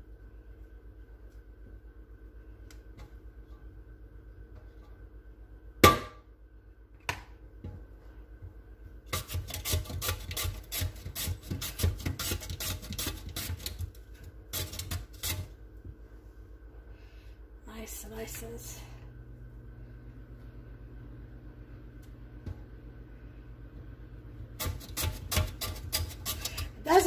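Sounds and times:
potato rasping on a grater: 9.1s - 15.6s, 24.6s - 27.0s.

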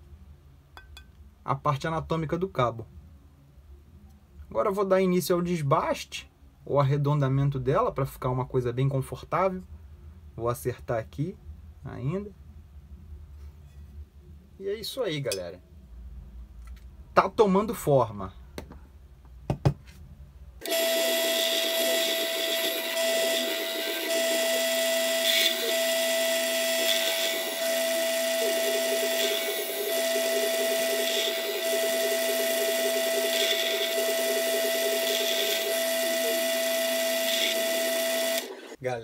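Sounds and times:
drill press whining: 20.6s - 38.8s.

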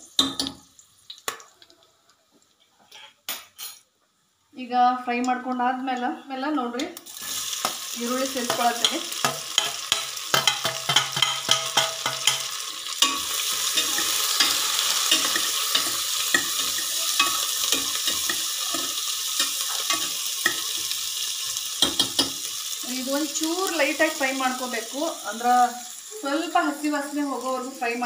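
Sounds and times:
onions sizzling in a pot: 0.0s - 1.8s, 5.0s - 28.0s
metal spatula scraping a pot: 8.5s - 20.9s.

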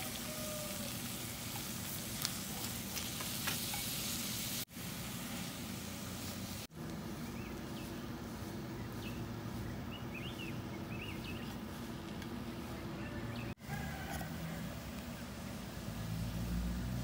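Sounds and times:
shrimp sizzling in a pan: 0.0s - 6.7s
steady low hum: 4.7s - 13.6s
bird chirping: 7.2s - 11.7s.

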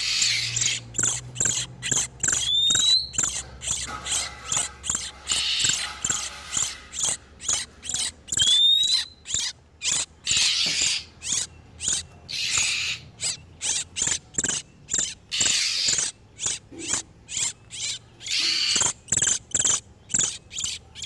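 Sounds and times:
bird harsh rasping calls: 0.0s - 21.0s
bird sharp chip notes: 0.5s - 9.2s
bird rising whistle: 8.4s - 9.2s.

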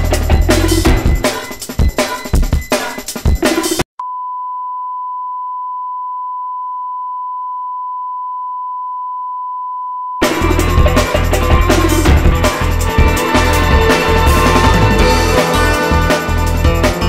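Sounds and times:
drum-heavy background music: 0.0s - 3.8s, 10.2s - 17.0s
steady electronic beep tone: 0.9s - 3.4s.

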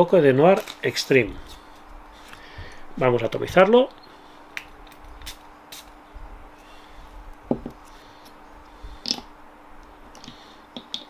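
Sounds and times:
perfume atomizer spray: 5.2s - 6.0s.

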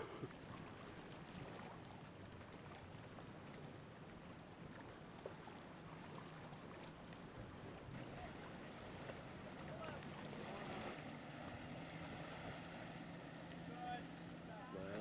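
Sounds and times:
wind and lake water hiss: 0.0s - 15.0s.

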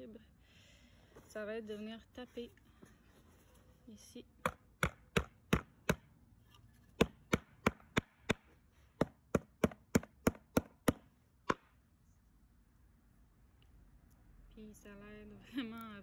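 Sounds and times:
stalk tapping on wooden board: 4.4s - 6.0s.

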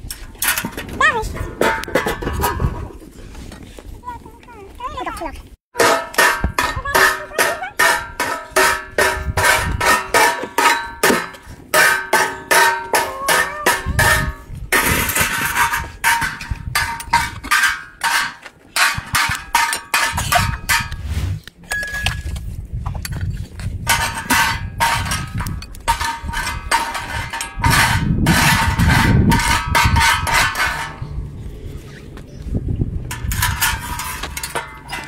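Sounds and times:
metal spatula scraping on griddle: 33.1s - 35.0s.

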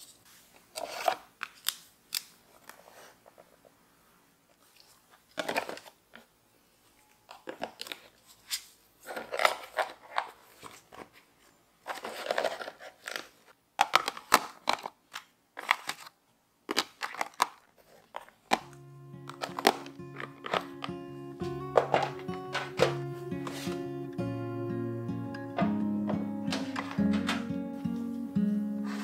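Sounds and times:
packaging rustling: 4.8s - 6.2s, 7.3s - 23.8s, 26.2s - 28.1s
items clicking against plastic: 5.3s - 6.3s, 7.3s - 11.1s, 11.8s - 23.7s, 25.6s - 27.6s.

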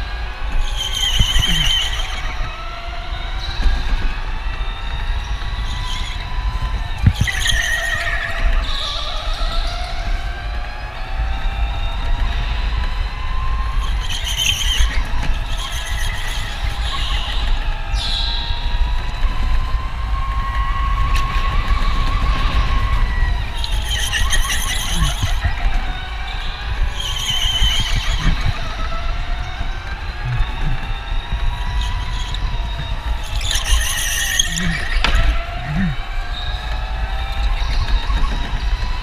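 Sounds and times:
electric go-kart motor whine: 0.0s - 39.0s
tyres squealing: 0.7s - 2.4s, 13.8s - 17.5s, 22.5s - 37.2s.

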